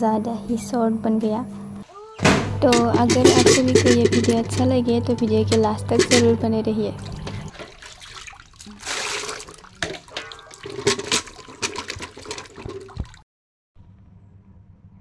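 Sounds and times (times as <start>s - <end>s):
water sloshing in a metal bucket: 2.5s - 13.2s.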